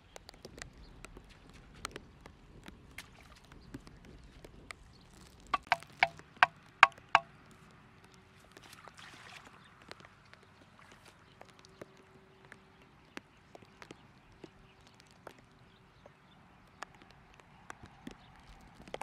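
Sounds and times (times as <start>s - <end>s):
wooden stake hammered into ground: 5.6s - 6.2s, 6.8s - 7.2s
soft splash of water: 8.5s - 11.6s.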